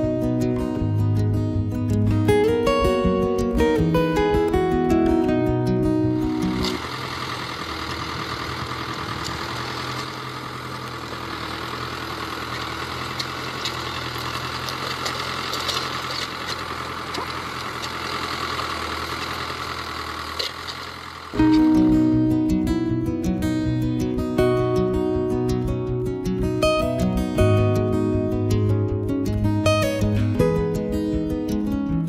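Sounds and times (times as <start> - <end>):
tractor engine running: 0.0 - 32.0.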